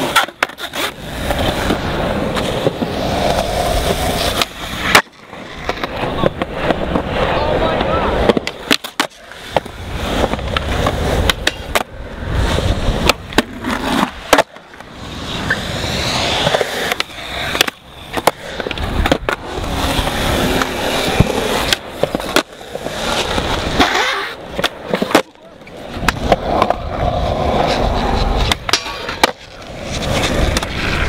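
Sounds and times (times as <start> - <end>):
skateboard clacks: 0.0 - 31.0
skateboard wheels rolling on concrete: 0.0 - 31.0.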